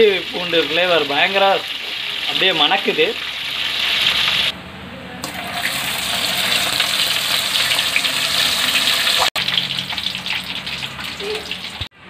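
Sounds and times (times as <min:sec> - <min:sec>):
crab sizzling in hot oil: 0:00.0 - 0:04.5, 0:05.3 - 0:11.9.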